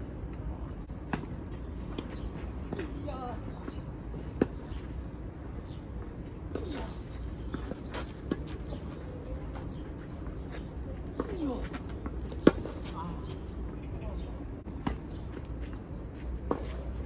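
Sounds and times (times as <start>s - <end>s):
birds chirping: 0.2s - 17.0s.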